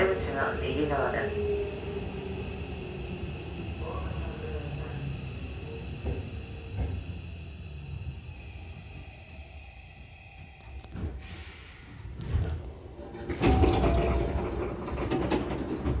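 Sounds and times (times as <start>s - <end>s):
train doors sliding open: 10.6s - 16.0s
air hiss: 11.1s - 12.2s.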